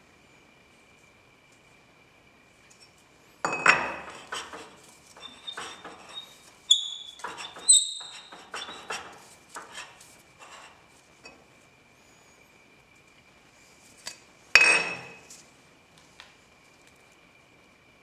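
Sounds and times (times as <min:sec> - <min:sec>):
metal clinks and knocks: 0:03.5 - 0:06.3.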